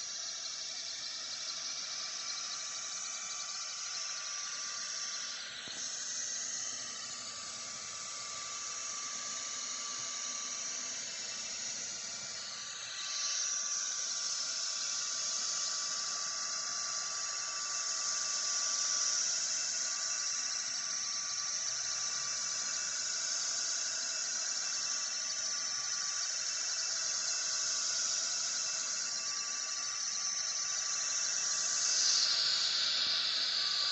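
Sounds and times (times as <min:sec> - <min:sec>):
thin high whine: 0:00.0 - 0:33.9
fan and air hissing: 0:30.4 - 0:33.9.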